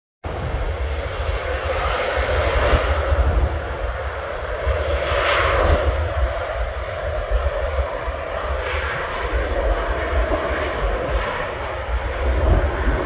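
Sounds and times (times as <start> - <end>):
jet engines whining: 0.3 - 13.0.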